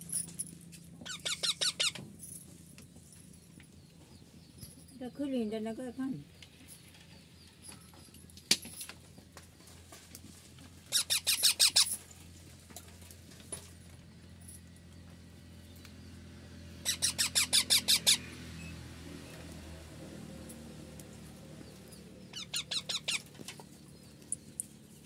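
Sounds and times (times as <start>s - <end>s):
parakeet squeaking: 1.0s - 2.0s, 10.9s - 12.0s, 16.8s - 18.8s, 22.2s - 23.4s.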